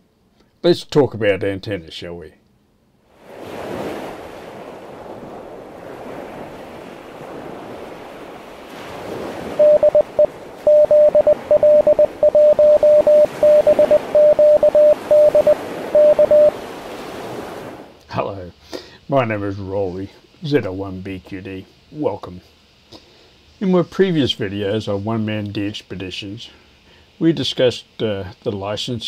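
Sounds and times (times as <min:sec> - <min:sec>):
surf breaking on a beach: 0:03.1 - 0:17.9
morse code beeps: 0:09.6 - 0:16.6.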